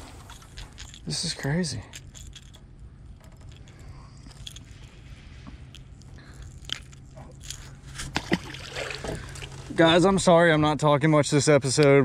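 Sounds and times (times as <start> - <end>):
low steady hum: 0.0 - 12.0
handling clicks and crackles: 0.1 - 5.0, 5.6 - 8.2.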